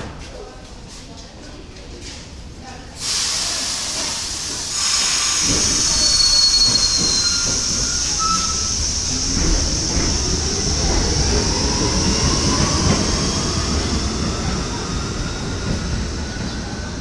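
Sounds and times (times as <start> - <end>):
train wheels rumbling on rail: 0.0 - 17.0
high-pitched wheel squeal: 5.7 - 8.8.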